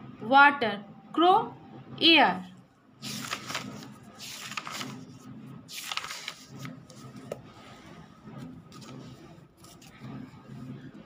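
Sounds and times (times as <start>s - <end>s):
paper pages rustling: 3.0s - 10.7s.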